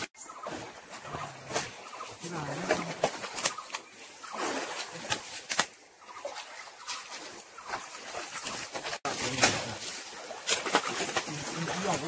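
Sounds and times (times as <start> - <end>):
stream water splashing: 0.0 - 12.0.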